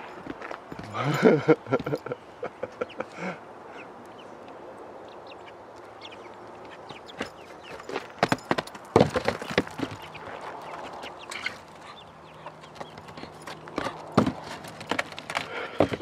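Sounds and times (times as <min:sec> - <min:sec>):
chickens clucking: 0:01.0 - 0:07.9, 0:09.4 - 0:14.4
hooves knocking on roof: 0:12.7 - 0:16.0.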